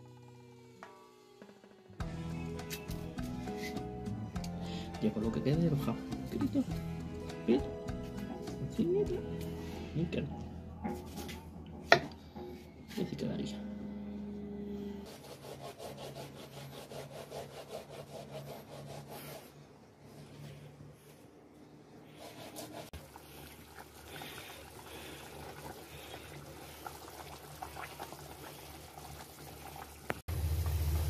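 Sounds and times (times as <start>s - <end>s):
liquid sloshing and simmering: 22.9s - 30.2s.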